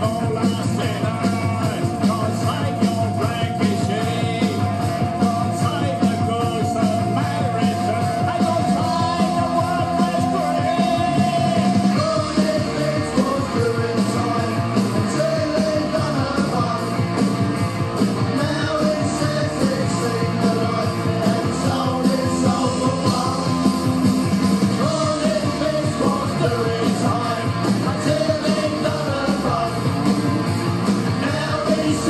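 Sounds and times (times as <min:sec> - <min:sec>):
punk rock song: 0:00.0 - 0:32.0
man shouting vocals: 0:05.5 - 0:14.0.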